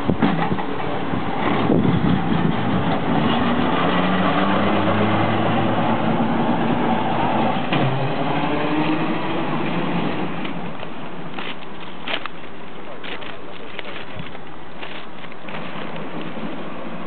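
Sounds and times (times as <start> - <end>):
tram wheels rolling on rails: 0.0 - 17.0
tram wheel knocks: 0.1 - 0.8.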